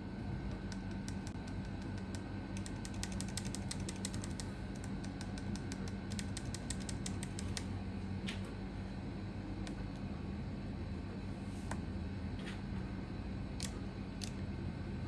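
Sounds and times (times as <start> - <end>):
keyboard switches clacking: 0.5 - 7.7.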